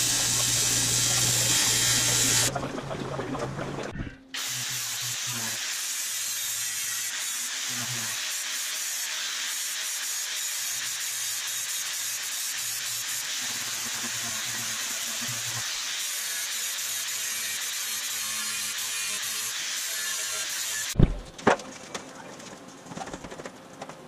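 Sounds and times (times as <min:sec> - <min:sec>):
angle grinder sanding metal: 0:00.0 - 0:02.5, 0:04.4 - 0:21.0.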